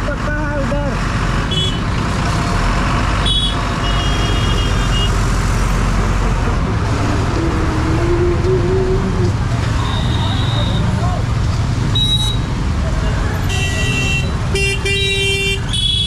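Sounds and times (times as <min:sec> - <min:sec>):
motorbike and truck engines rumbling: 0:00.0 - 0:16.0.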